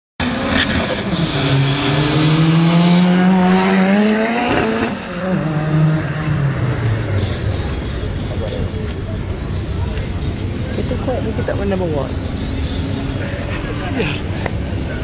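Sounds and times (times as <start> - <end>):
car engine accelerating past: 0.2 - 7.5.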